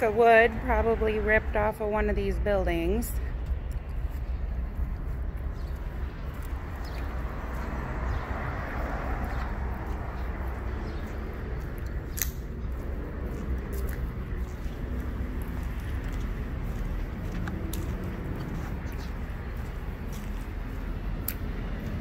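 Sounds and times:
footsteps on gritty asphalt: 0:00.0 - 0:22.0
low outdoor rumble: 0:00.0 - 0:22.0
sharp click: 0:12.1 - 0:12.4.

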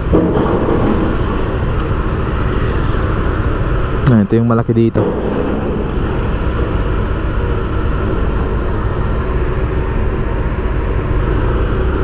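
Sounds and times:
low engine rumble: 0:00.0 - 0:12.0
road and traffic noise: 0:00.0 - 0:12.0.

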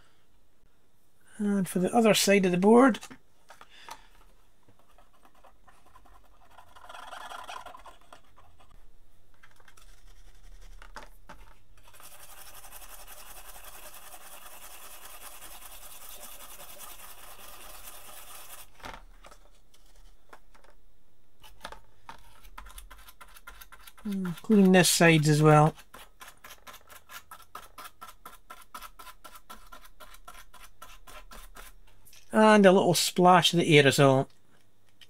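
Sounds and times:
brush scrubbing circuit board: 0:04.8 - 0:08.8, 0:09.5 - 0:10.9, 0:11.8 - 0:18.8, 0:22.2 - 0:31.8.

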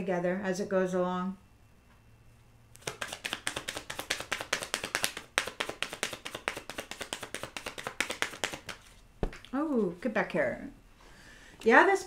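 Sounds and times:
cards being shuffled: 0:02.8 - 0:09.6.

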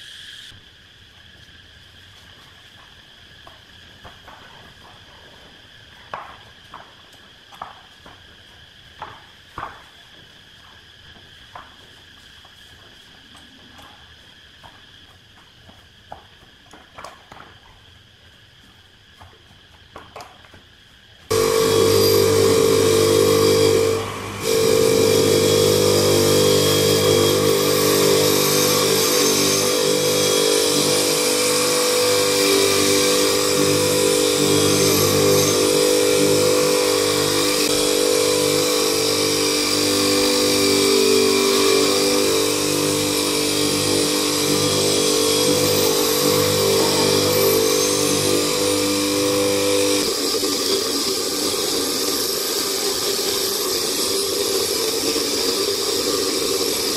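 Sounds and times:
bench grinder running: 0:21.3 - 0:56.9.

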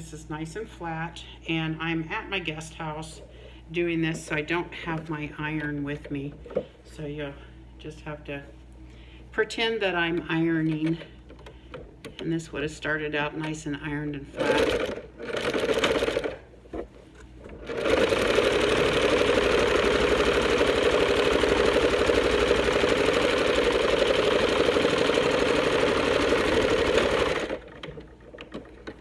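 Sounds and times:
sewing machine stitching: 0:14.4 - 0:16.4, 0:17.5 - 0:29.0.

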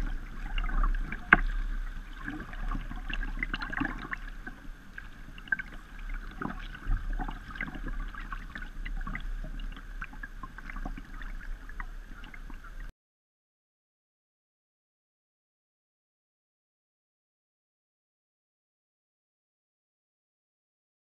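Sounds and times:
water splashing against kayak: 0:00.0 - 0:12.9.

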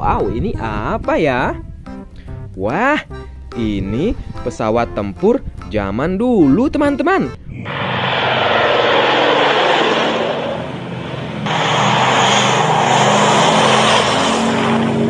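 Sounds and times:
propeller plane passing overhead: 0:07.6 - 0:15.0.

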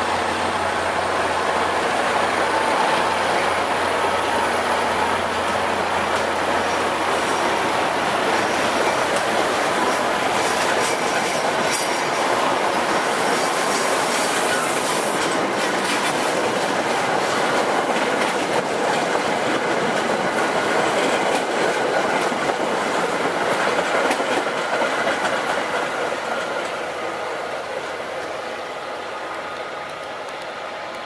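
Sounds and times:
train wheels clacking over rail joints: 0:02.6 - 0:27.3.

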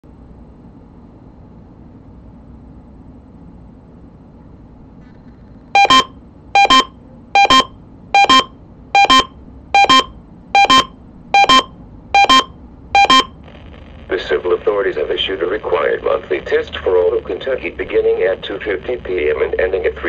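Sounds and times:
scanner radio alarm double beeps: 0:05.8 - 0:13.4.

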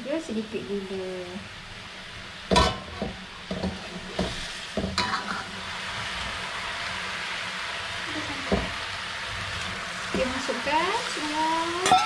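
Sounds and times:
gravy sizzling in pan: 0:00.0 - 0:12.0
spatula scraping metal wok: 0:02.8 - 0:06.1.

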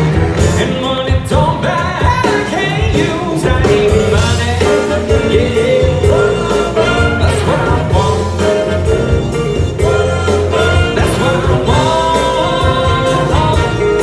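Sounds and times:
live band playing: 0:00.0 - 0:14.0
man singing: 0:00.4 - 0:14.0
saxophones and trumpets: 0:03.6 - 0:14.0.

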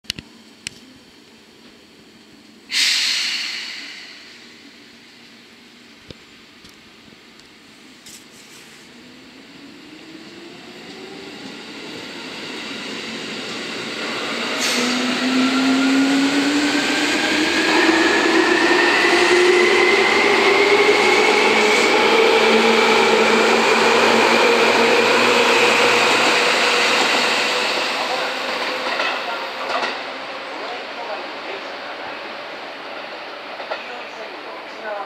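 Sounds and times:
train wheels rumbling on rails: 0:09.8 - 0:35.0.

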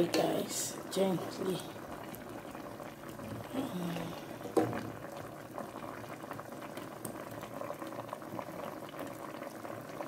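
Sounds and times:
water boiling and bubbling: 0:00.0 - 0:10.0.

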